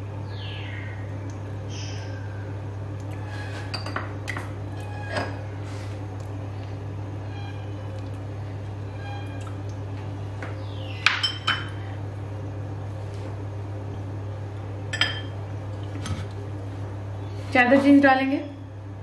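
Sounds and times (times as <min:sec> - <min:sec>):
steady low hum: 0:00.0 - 0:19.0
dishes clinking: 0:03.6 - 0:04.1, 0:11.0 - 0:11.8, 0:14.9 - 0:16.3.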